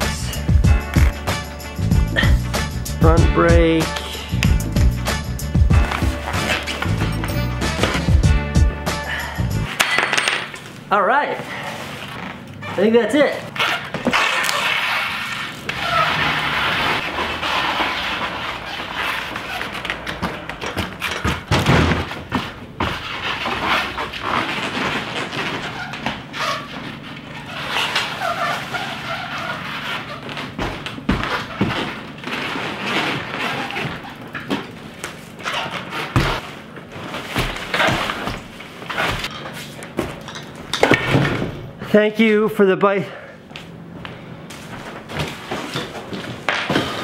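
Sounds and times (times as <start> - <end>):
bicycle thumping over cardboard: 19.6 - 23.6, 30.4 - 40.2.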